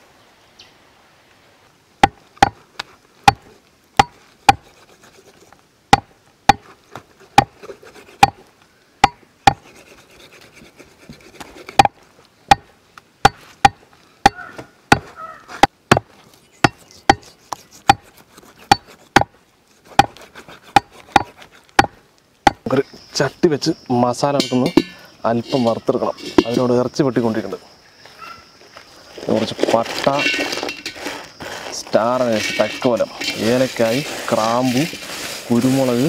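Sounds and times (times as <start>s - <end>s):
cleaver chopping meat on wood: 9.0s - 9.6s, 12.5s - 17.2s, 20.0s - 22.6s.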